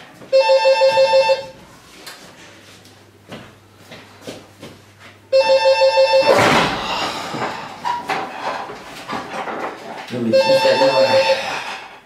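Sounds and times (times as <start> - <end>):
electronic telephone ringing: 0.3 - 1.6, 5.3 - 6.4, 10.3 - 11.5.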